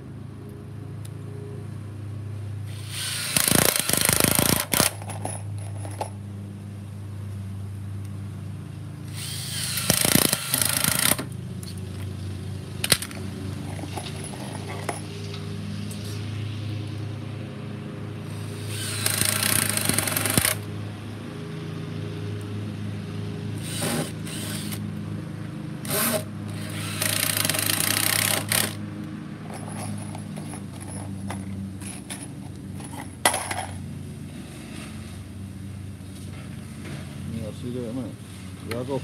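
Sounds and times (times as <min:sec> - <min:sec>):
cordless drill driving screws: 0:02.7 - 0:04.9, 0:09.1 - 0:11.3, 0:18.6 - 0:20.6, 0:23.6 - 0:24.8, 0:25.8 - 0:28.8.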